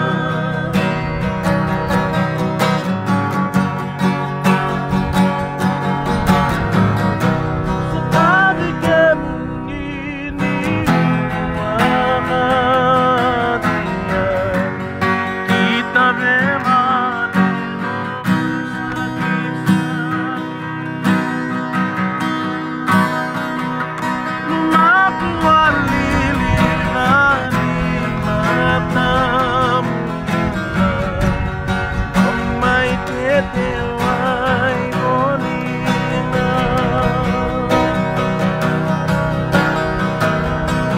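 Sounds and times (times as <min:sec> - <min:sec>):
person singing: 0:00.0 - 0:02.2, 0:07.6 - 0:18.1, 0:18.9 - 0:21.0, 0:24.4 - 0:31.6, 0:32.2 - 0:38.3
acoustic guitars strumming: 0:00.0 - 0:40.9.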